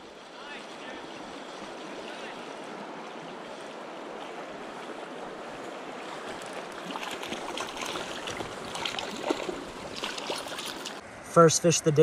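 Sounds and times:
fish splashing at surface: 6.2s - 11.0s.

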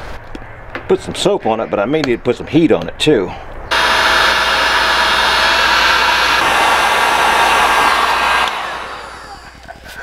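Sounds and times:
heat gun blowing: 3.7s - 9.7s.

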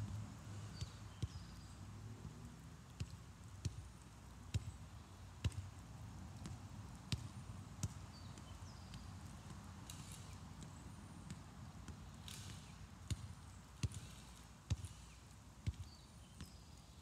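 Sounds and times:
ball taps from feet: 4.5s - 4.7s, 5.4s - 5.7s.

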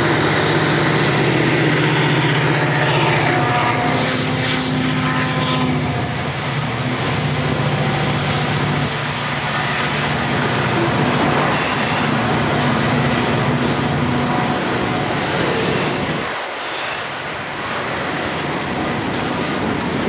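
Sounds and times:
train wheels rumbling on rail: 0.0s - 20.0s.

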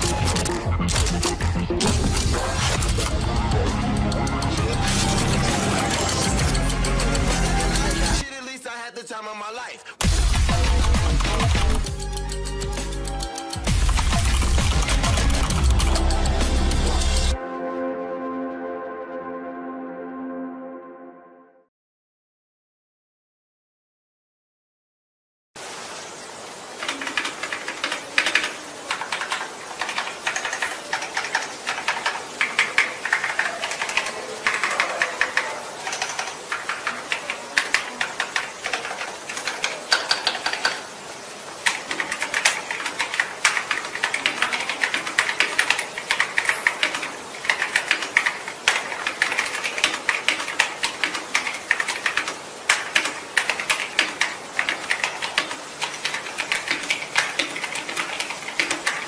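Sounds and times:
mechanical keyboard typing: 0.0s - 8.2s, 10.0s - 17.4s, 26.8s - 40.9s, 41.6s - 59.0s.

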